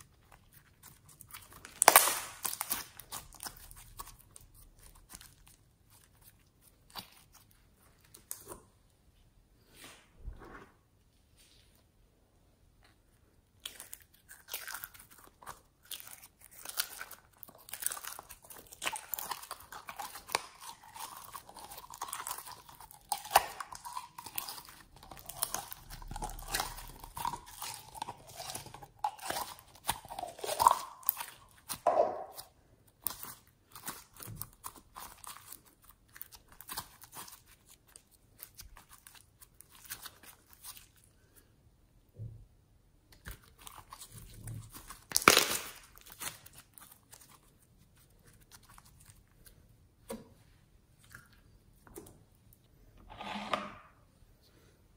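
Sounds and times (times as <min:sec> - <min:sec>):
slime squelching and clicking: 0:00.0 - 0:08.7, 0:13.5 - 0:40.9.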